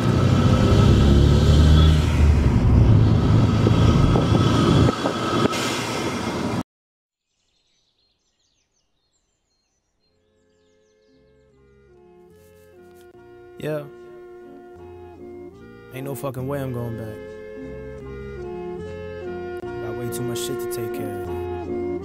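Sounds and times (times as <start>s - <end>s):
car engine and road rumble: 0.0s - 6.6s.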